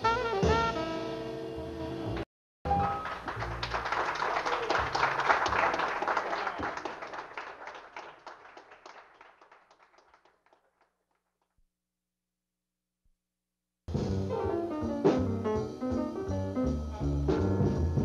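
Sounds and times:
jazz band with saxophone: 0.0s - 2.2s
audience applause: 2.8s - 11.0s.

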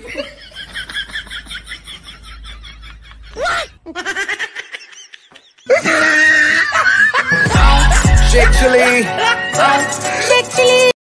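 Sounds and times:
high-pitched laughing voice: 3.3s - 9.4s
loud music: 7.2s - 10.9s.

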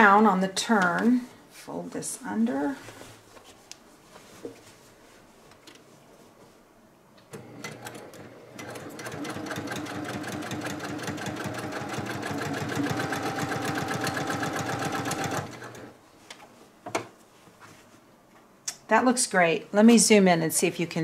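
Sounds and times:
sewing machine stitching: 7.3s - 16.0s.

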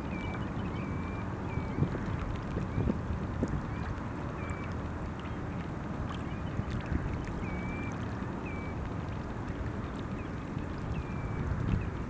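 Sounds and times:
thin whistled bird calls: 0.0s - 1.8s, 7.4s - 8.8s, 10.9s - 11.9s
wind rumble on microphone: 0.0s - 12.0s.

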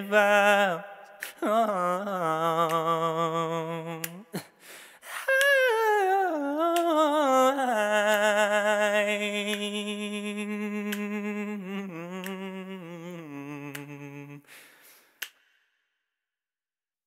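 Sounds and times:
soft breath: 4.6s - 5.3s, 14.4s - 15.2s.

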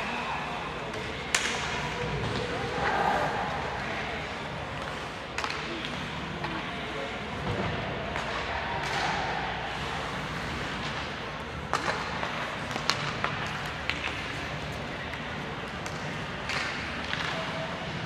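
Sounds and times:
sharp knocks of sticks and puck: 0.9s - 3.0s, 4.9s - 6.7s, 7.4s - 9.4s, 10.7s - 17.6s.

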